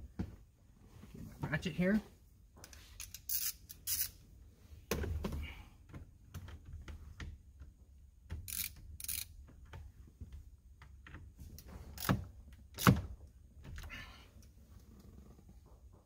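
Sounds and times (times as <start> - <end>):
hand ratchet clicking: 2.6 - 4.2, 8.4 - 9.3.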